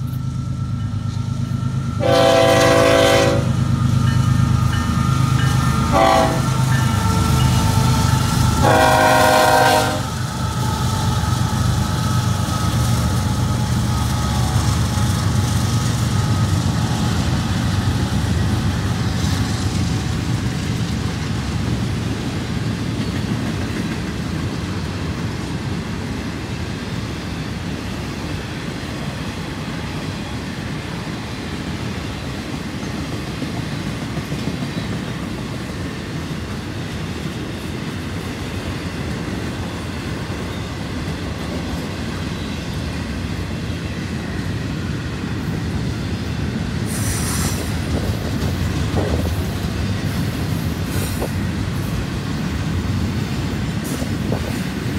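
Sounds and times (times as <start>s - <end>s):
freight train wheels rumbling on rail: 0.0s - 54.9s.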